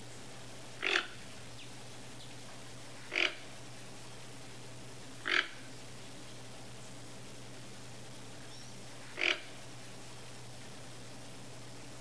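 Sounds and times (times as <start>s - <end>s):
toucan giving hoarse calls: 0.8s - 1.2s, 3.1s - 3.5s, 5.2s - 5.7s, 9.1s - 9.6s.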